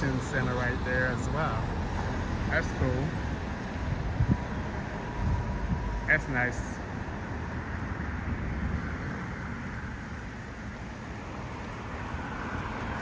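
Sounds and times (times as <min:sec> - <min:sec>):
cars passing: 0:00.0 - 0:13.0.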